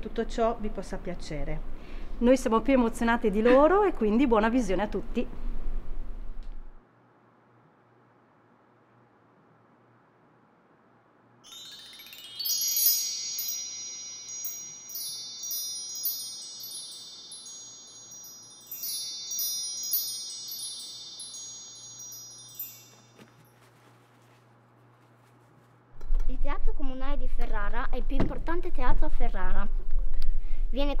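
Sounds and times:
wind chimes ringing: 0:11.4 - 0:23.7.

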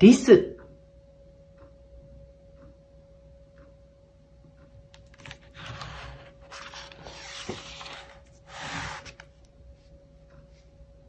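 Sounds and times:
book pages rustling: 0:05.0 - 0:09.5.

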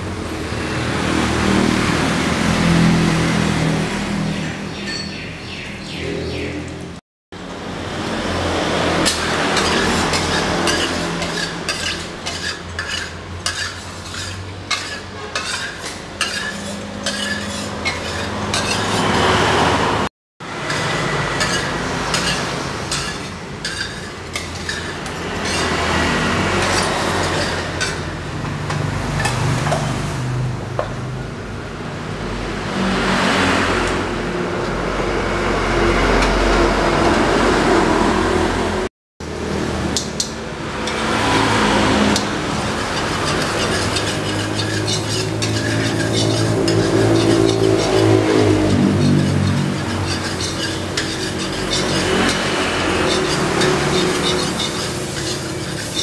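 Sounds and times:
knife scraping plastic bowl: 0:09.1 - 0:19.2, 0:21.4 - 0:26.0, 0:42.1 - 0:56.0.

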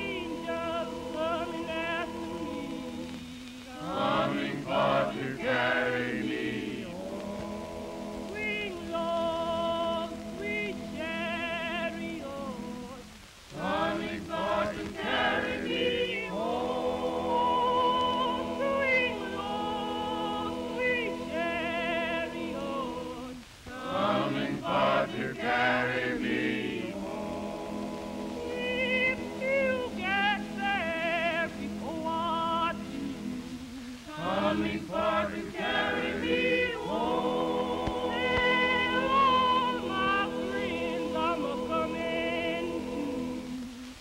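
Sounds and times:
choir singing: 0:00.0 - 0:44.0.

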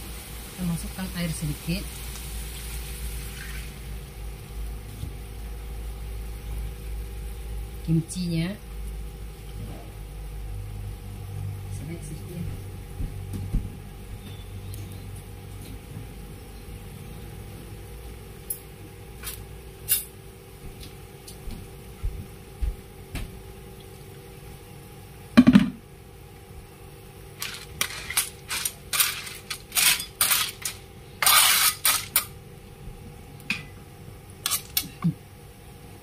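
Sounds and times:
spatula scraping a metal wok: 0:27.4 - 0:32.3
snail shells clacking in a wok: 0:27.4 - 0:32.4, 0:34.4 - 0:35.0.

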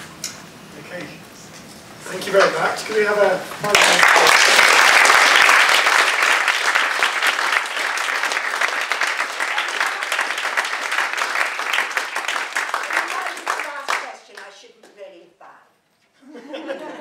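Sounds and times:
audience applauding: 0:03.6 - 0:14.5.

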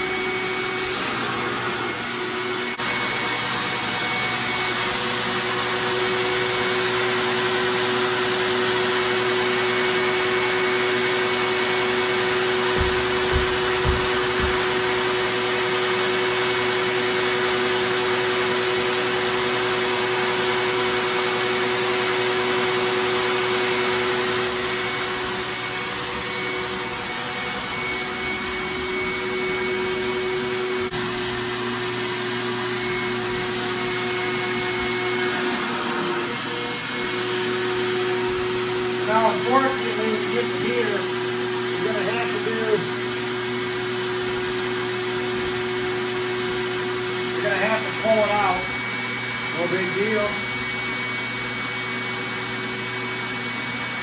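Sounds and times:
fan motor whirring hum: 0:12.3 - 0:15.0, 0:22.3 - 0:36.9
dull thumps: 0:12.7 - 0:14.7.

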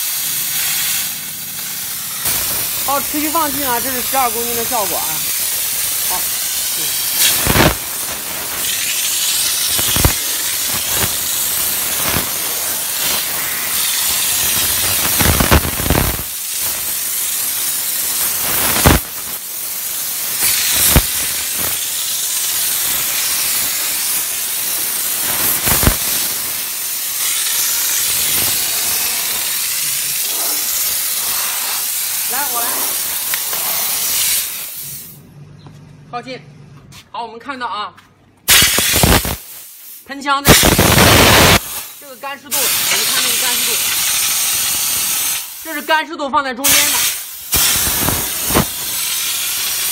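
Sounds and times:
steam jet hissing: 0:00.0 - 0:35.2, 0:38.5 - 0:46.0, 0:46.6 - 0:49.9
short sharp pops: 0:09.7 - 0:11.2, 0:38.5 - 0:39.5, 0:40.5 - 0:41.9, 0:46.7 - 0:48.7.

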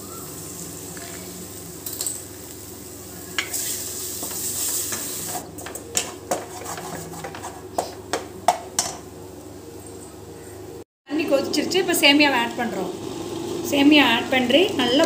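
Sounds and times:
egg sizzling in a pan: 0:00.0 - 0:05.5
wooden spatula scraping pan: 0:05.9 - 0:08.0.

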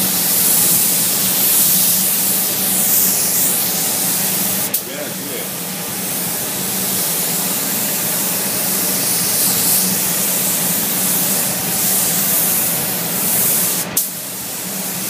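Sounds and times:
spray gun hissing: 0:00.0 - 0:15.0.

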